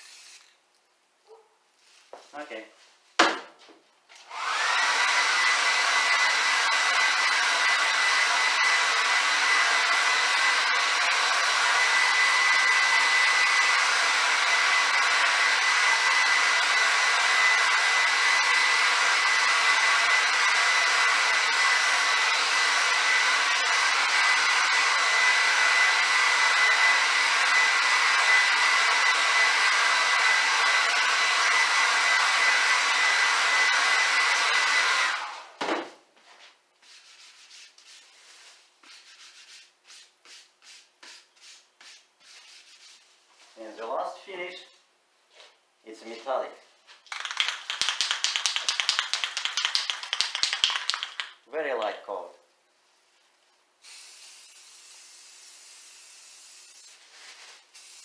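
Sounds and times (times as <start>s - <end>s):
hair dryer blowing: 4.2s - 35.7s, 47.1s - 51.4s.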